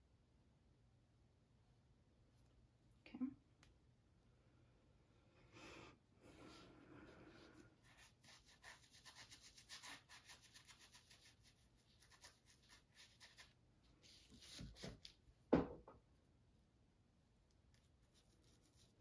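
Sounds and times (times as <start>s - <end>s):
paintbrush scrubbing on canvas: 6.4s - 15.1s, 17.8s - 19.0s
thump: 15.5s - 16.0s.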